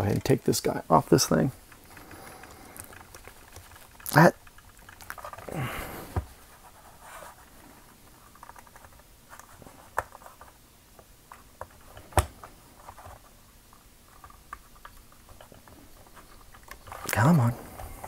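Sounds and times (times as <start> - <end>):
plastic clicks and rubbing: 1.6 - 5.5, 8.2 - 10.6, 11.3 - 17.4.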